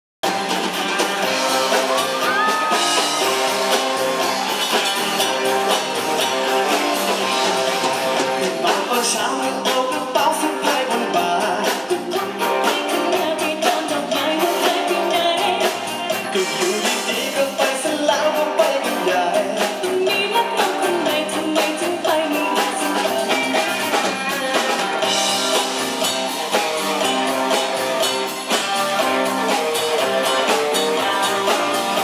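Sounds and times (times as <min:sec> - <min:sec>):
bass guitar: 0:00.2 - 0:32.0
drums: 0:00.2 - 0:32.0
electric guitars: 0:00.2 - 0:32.0
person singing into microphones: 0:08.2 - 0:25.6.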